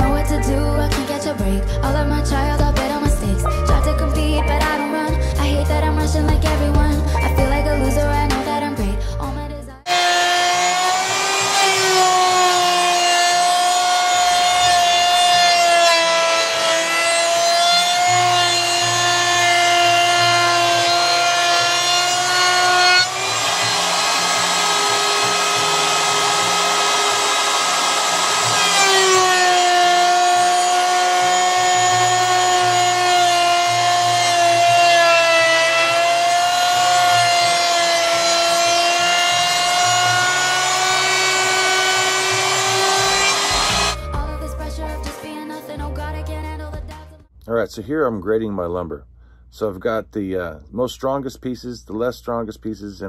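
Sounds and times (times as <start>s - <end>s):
router bit cutting wood: 0.0s - 1.2s, 9.9s - 44.0s
router whining: 0.0s - 1.4s, 9.8s - 44.1s.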